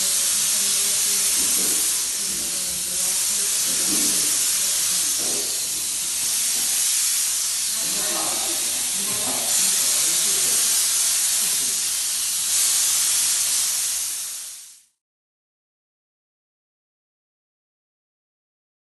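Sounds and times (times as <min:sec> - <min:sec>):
steam hissing from a lance: 0:00.0 - 0:15.0.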